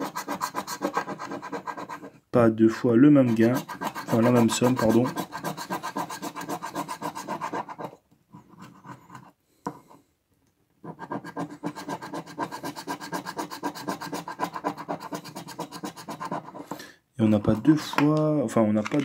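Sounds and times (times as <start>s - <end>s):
coin scraping scratch card: 0.0s - 2.1s, 3.2s - 9.3s, 10.8s - 16.8s.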